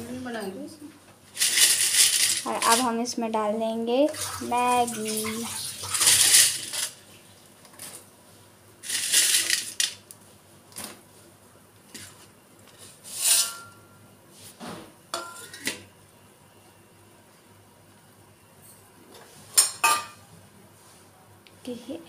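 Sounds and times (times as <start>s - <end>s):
noodles clattering and rustling: 1.4s - 2.9s.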